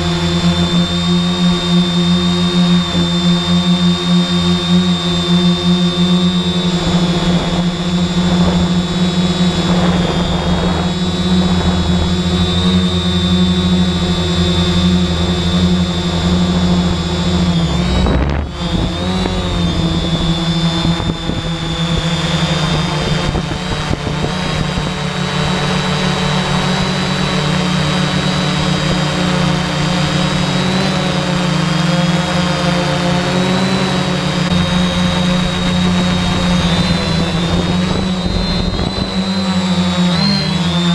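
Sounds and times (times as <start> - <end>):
drone motors whining: 0.0 - 40.9.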